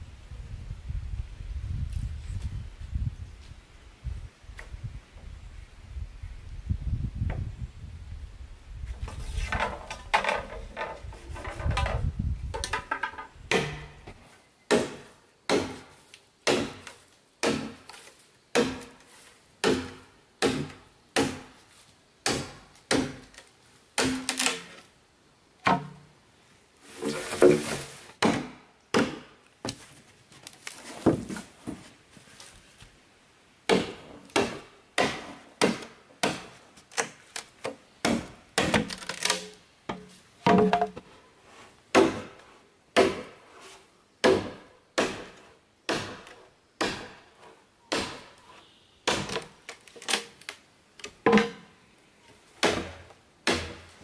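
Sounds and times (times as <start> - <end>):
machete chopping bamboo: 12.6 - 14.0, 14.7 - 19.0, 19.6 - 21.6, 22.2 - 23.4, 24.0 - 24.8, 27.3 - 29.8, 33.7 - 41.0, 41.9 - 42.4, 43.0 - 43.4, 44.2 - 47.3, 47.9 - 48.4, 49.0 - 51.7, 52.6 - 54.0.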